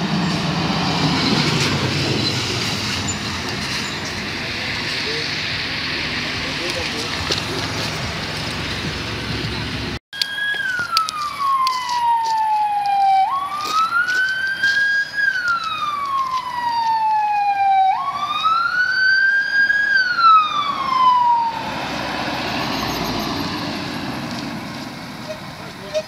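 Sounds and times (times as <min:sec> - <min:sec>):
car engine and tyre noise: 0:00.0 - 0:26.0
electronic wail siren: 0:10.2 - 0:23.6.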